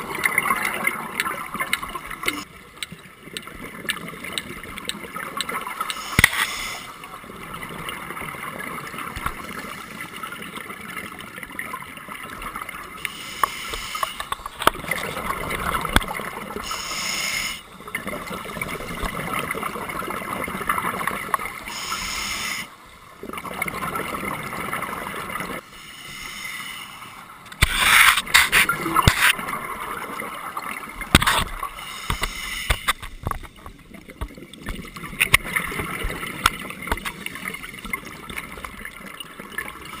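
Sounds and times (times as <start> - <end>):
regulator hiss underwater: 5.8 - 7.2, 13.0 - 14.4, 16.5 - 17.8, 21.6 - 22.8, 25.6 - 29.3, 31.2 - 33.4
gurgling exhaled bubbles: 14.4 - 16.8.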